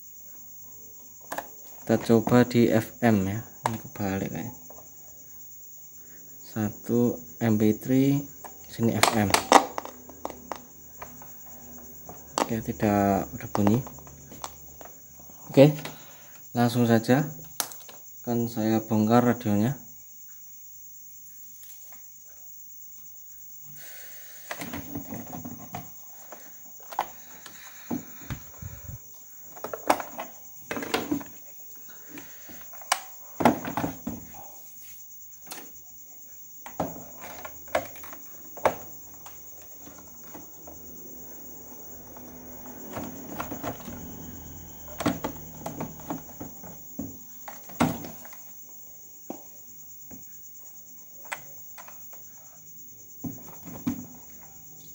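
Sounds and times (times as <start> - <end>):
plastic parts clicking: 8.7 - 11.2, 17.4 - 18.0, 29.5 - 31.4.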